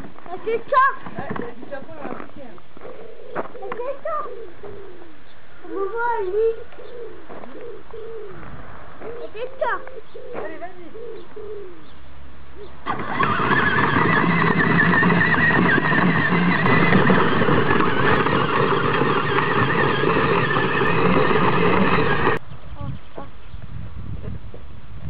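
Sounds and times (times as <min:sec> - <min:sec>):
electric toy motor whine: 0:12.8 - 0:22.4
plastic wheels crunching gravel: 0:12.8 - 0:22.4.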